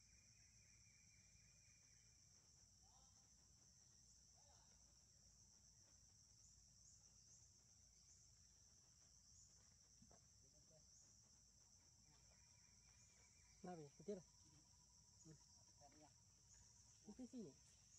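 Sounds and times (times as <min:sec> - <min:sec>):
insects chirring: 0:00.0 - 0:17.9.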